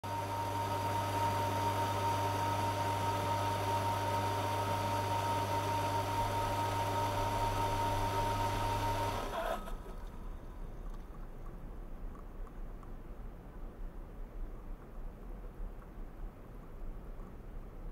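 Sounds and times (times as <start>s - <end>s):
deep mains drone: 0.0s - 11.0s
pump electrical hum: 0.0s - 17.9s
faint low rumble: 9.6s - 17.9s.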